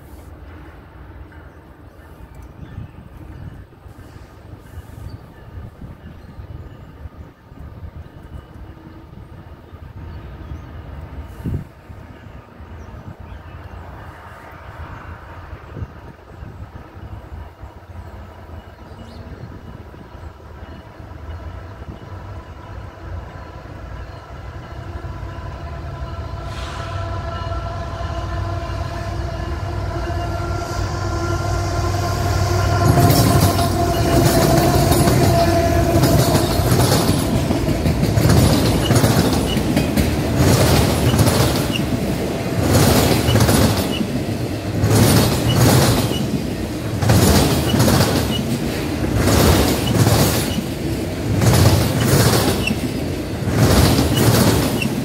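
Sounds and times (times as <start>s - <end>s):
diesel locomotive rumble: 0.0s - 55.0s
train wheels clattering on rails: 31.9s - 55.0s.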